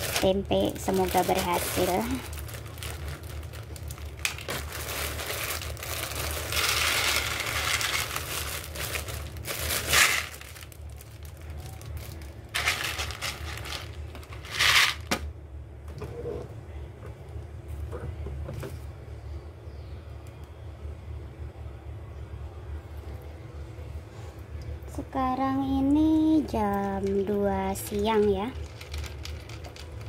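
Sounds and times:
beans rattling into plastic tub: 0.0s - 10.8s, 12.0s - 15.2s, 26.8s - 30.0s
plastic bag crinkling: 0.0s - 15.2s, 26.5s - 30.0s.

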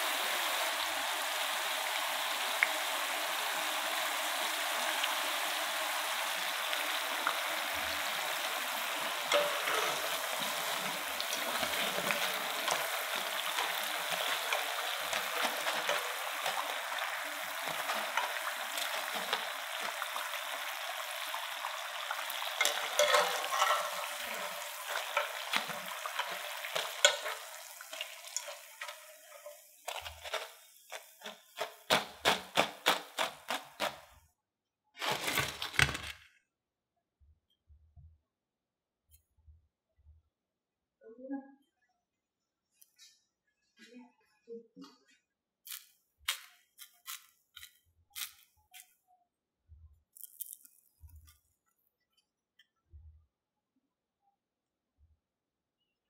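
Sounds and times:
sharp ticks of frying: 0.0s - 34.0s
potatoes sizzling in hot oil: 0.0s - 34.1s, 35.0s - 36.1s.

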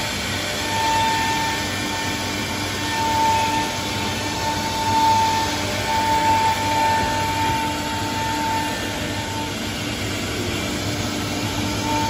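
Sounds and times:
router spindle whine: 0.0s - 12.0s.

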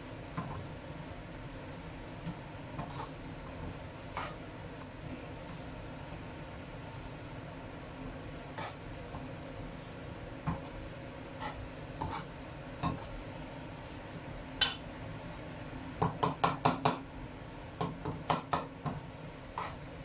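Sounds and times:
spatula scraping a wok: 0.3s - 5.9s, 6.5s - 14.0s, 19.3s - 20.0s.

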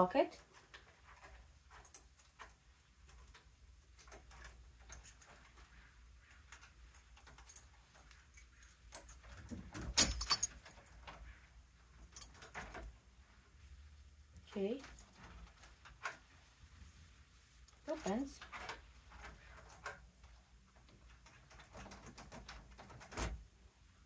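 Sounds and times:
door lock clicks and rattles: 8.9s - 11.2s, 21.3s - 23.4s.

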